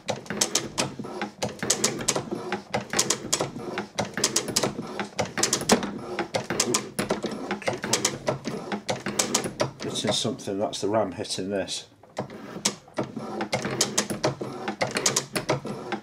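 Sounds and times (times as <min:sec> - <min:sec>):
metal shaper clicking and clattering: 0:00.0 - 0:10.3.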